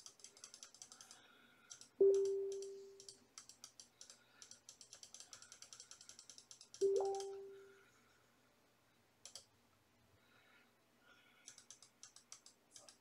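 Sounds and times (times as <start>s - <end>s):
computer mouse clicking: 0.0s - 7.4s, 9.2s - 9.5s, 11.4s - 13.0s.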